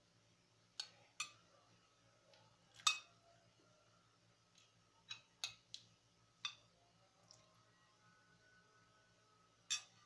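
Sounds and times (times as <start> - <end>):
cutlery clinking against plate: 9.7 - 10.0.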